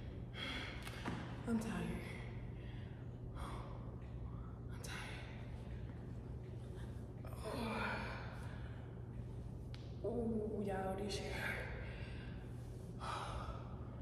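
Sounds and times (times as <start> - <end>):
woman breathing hard: 0.0 - 1.3, 2.0 - 4.7, 11.6 - 14.0
low hum: 0.0 - 14.0.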